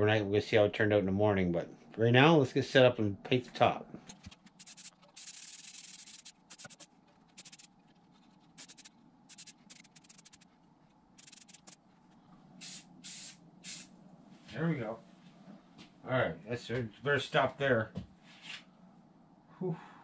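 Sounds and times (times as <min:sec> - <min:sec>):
spray can hissing: 0:04.2 - 0:07.7, 0:08.6 - 0:10.4, 0:11.2 - 0:11.8, 0:12.6 - 0:13.9.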